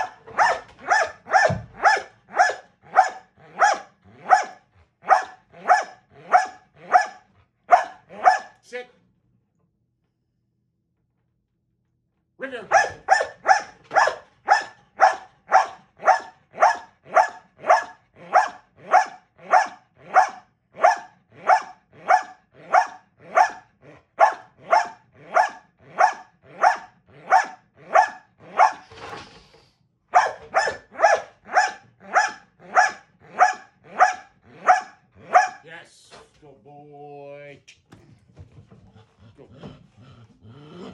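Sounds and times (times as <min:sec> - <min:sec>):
dog barking rhythmically: 0:00.0 - 0:08.6, 0:12.5 - 0:28.8, 0:30.1 - 0:35.7
dog breathing: 0:28.8 - 0:29.9, 0:38.8 - 0:40.9.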